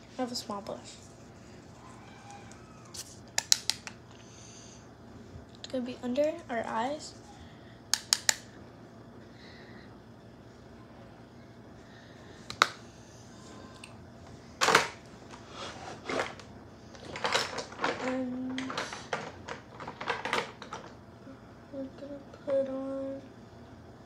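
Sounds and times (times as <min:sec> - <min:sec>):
makeup items clicking and rattling: 0:17.0 - 0:20.9.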